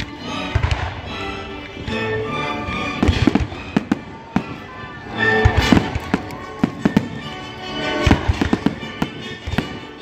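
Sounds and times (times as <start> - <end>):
orchestra playing: 0.0 - 10.0
fireworks bangs: 0.5 - 1.2, 2.9 - 10.0.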